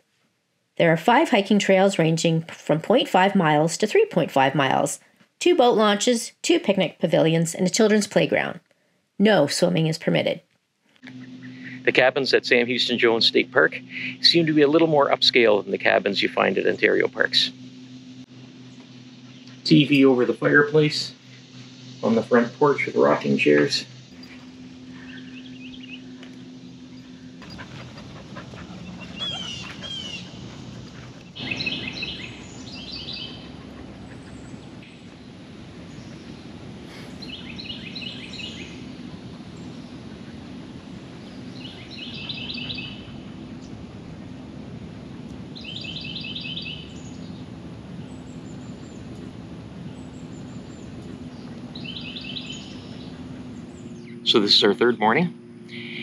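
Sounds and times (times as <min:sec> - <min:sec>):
low hum: 0:00.0 - 0:56.0
bird chirping: 0:18.6 - 0:43.8, 0:45.5 - 0:54.8
songbird singing high notes: 0:19.3 - 0:26.2, 0:31.4 - 0:33.5, 0:41.3 - 0:43.1.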